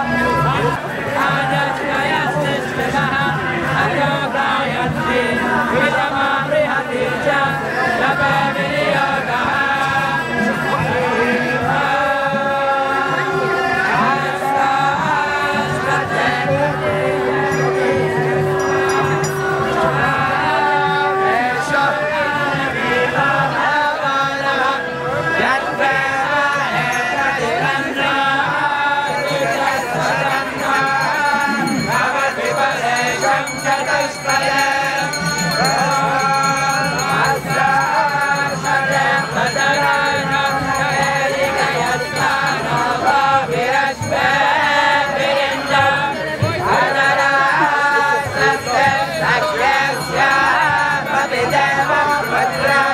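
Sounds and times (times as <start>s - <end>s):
group singing devotional chant: 0.0s - 52.9s
music: 0.0s - 52.9s.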